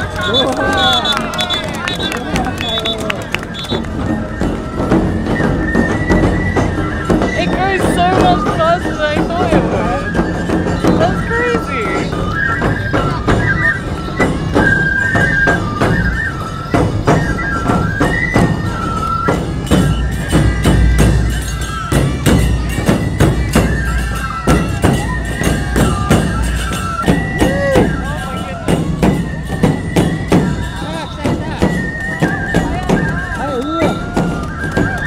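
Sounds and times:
bamboo flutes melody: 0:00.0 - 0:35.0
taiko drums beating: 0:00.0 - 0:35.0
hand cymbals clashing: 0:18.8 - 0:27.8.

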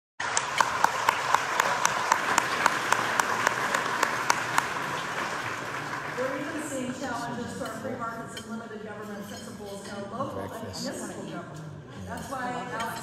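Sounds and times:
hands clapping sharply nearby: 0:00.2 - 0:06.6
audience applauding: 0:00.2 - 0:07.2.

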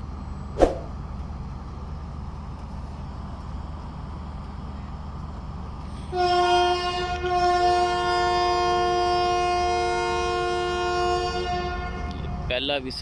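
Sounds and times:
locomotive horn blast: 0:06.1 - 0:12.6.

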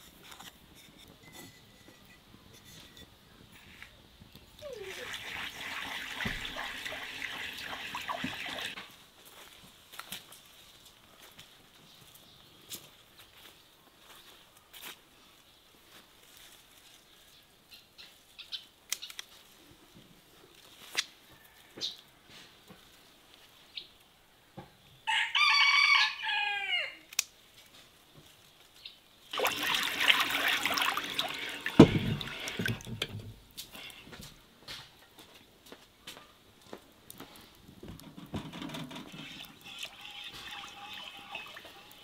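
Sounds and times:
rooster crowing: 0:25.0 - 0:27.1.

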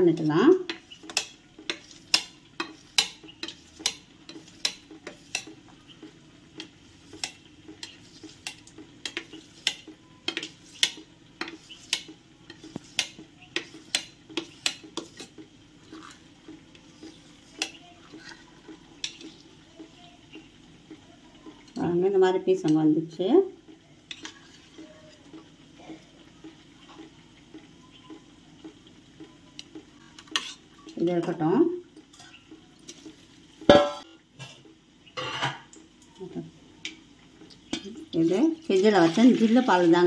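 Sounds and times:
knife tapping and scraping metal: 0:00.1 - 0:18.4, 0:19.0 - 0:19.4, 0:24.1 - 0:24.7, 0:29.6 - 0:30.6.

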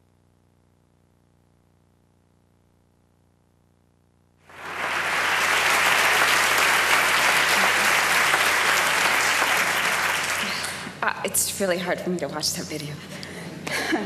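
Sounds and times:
audience applause: 0:04.5 - 0:11.0.

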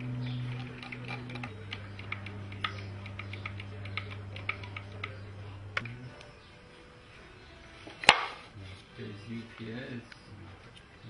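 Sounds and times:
hand screwdriver clicking: 0:00.0 - 0:05.2
low steady drone: 0:00.0 - 0:11.0.

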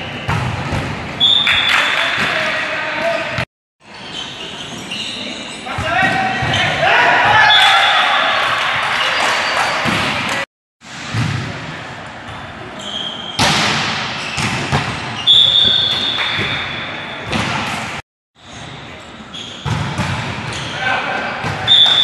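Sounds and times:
volleyball hits echoing: 0:13.4 - 0:18.0.

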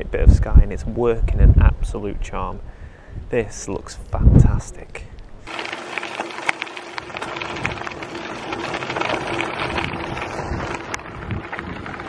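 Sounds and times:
bike tyres crunching on gravel: 0:05.4 - 0:12.0.

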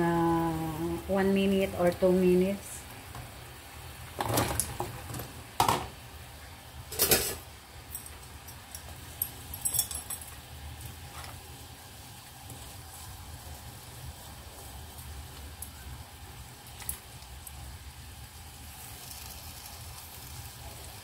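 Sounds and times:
metal tongs clinking on pan: 0:06.9 - 0:10.4.

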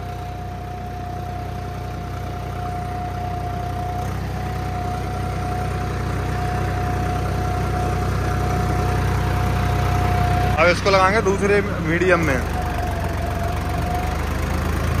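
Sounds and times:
tractor diesel engine running: 0:00.0 - 0:15.0
steady whine: 0:04.3 - 0:15.0.

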